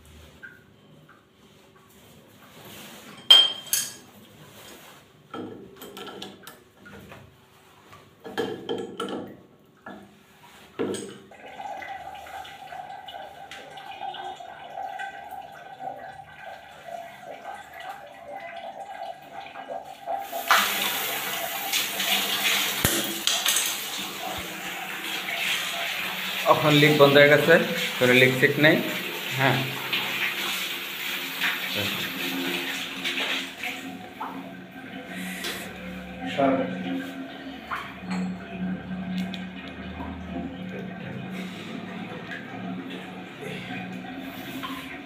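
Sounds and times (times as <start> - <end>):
water pouring into plastic bucket: 10.2 - 45.0.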